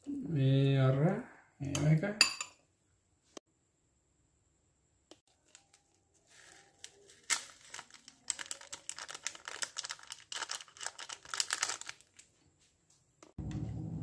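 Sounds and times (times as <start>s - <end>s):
plastic sachet crinkling: 5.3s - 12.3s.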